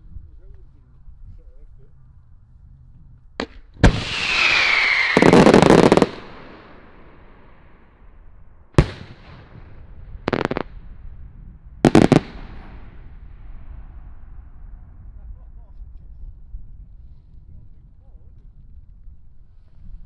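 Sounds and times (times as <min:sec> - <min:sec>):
firework bang: 0:03.4 - 0:07.2, 0:08.8 - 0:10.8
firework crackling: 0:03.8 - 0:07.1, 0:10.3 - 0:10.7, 0:11.8 - 0:13.6.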